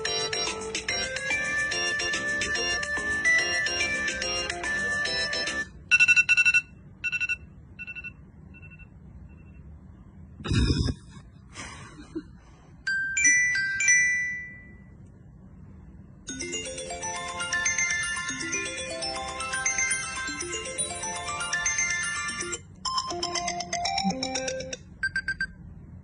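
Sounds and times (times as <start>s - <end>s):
electronic ringtone tune: 0.0s - 8.8s, 16.3s - 25.5s
clear tones: 16.3s - 25.7s.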